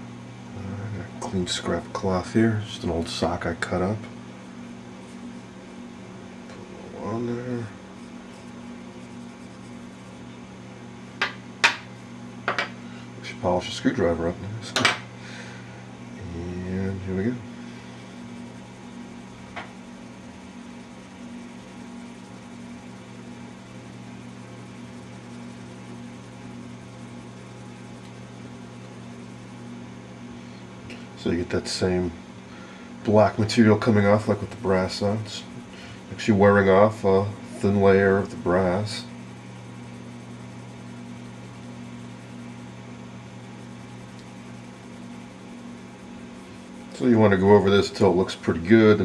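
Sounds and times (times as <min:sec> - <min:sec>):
low machine hum: 0:00.0 - 0:49.0.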